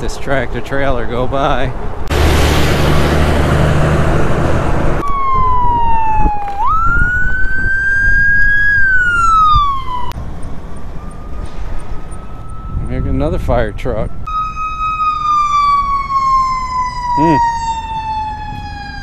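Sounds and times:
truck passing close: 1.5s - 5.9s, 8.8s - 19.0s
fire truck siren wailing: 2.1s - 10.2s, 10.8s - 19.0s.

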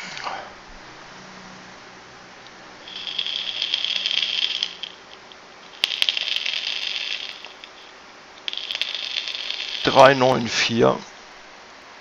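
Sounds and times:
e-cigarette coil crackling: 2.8s - 10.2s.

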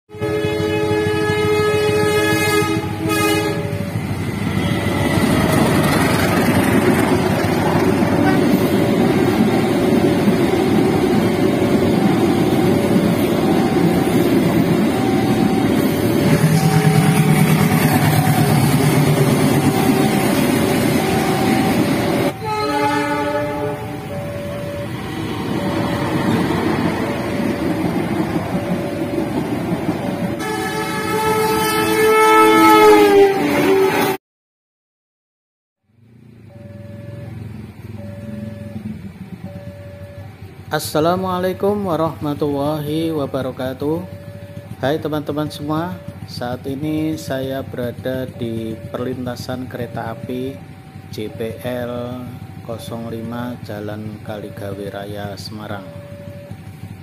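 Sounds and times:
train horn: 0.1s - 5.0s, 13.1s - 24.1s, 30.4s - 34.2s
two-tone crossing alarm: 0.1s - 33.9s, 36.3s - 57.0s
trains rumbling past: 0.1s - 34.2s, 35.9s - 57.0s.

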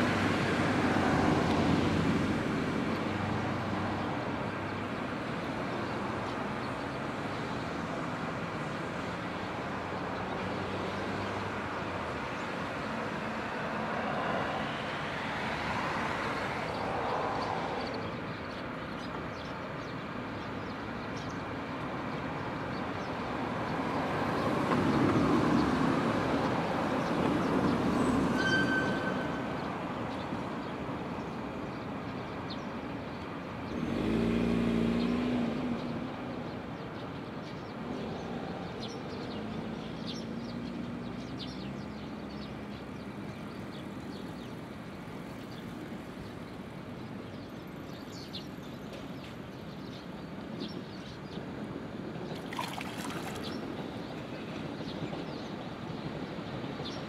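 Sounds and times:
passing traffic rush: 0.0s - 57.0s
fish splashing water: 52.4s - 53.7s.

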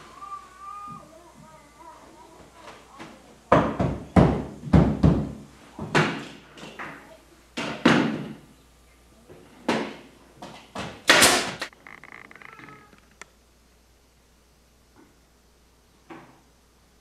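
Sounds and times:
nail gun firing: 11.1s - 11.7s.

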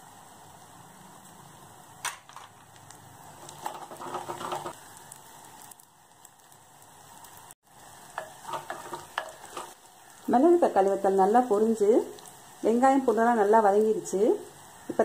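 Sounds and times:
faint steady hiss: 0.0s - 15.0s
metal spoon scraping clay pot: 3.4s - 4.8s, 8.2s - 9.8s.

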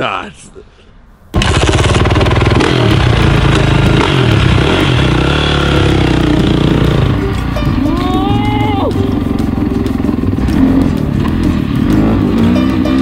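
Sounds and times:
dirt bike engine revving: 1.4s - 7.6s, 9.1s - 13.0s.

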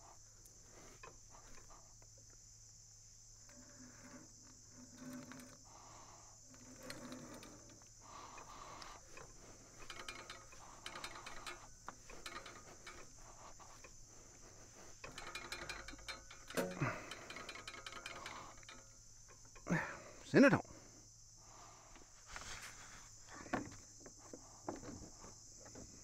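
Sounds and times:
insects buzzing: 0.0s - 26.0s
metal clicks and rattles: 6.5s - 19.9s.

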